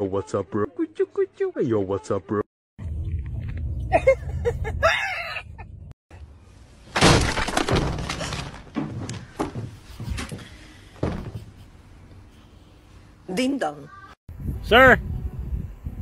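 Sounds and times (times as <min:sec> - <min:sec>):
glass breaking crash: 0:07.0 - 0:08.7
sharp knocks and clatters: 0:07.0 - 0:11.6.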